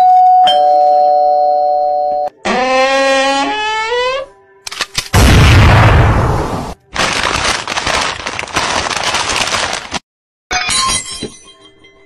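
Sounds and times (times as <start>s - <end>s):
glass smashing: 10.5s - 11.6s.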